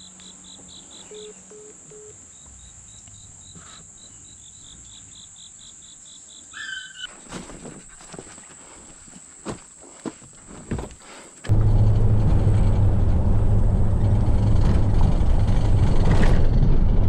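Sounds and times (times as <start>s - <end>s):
high insect drone: 0.0s - 6.8s
insects chirping: 0.0s - 11.5s.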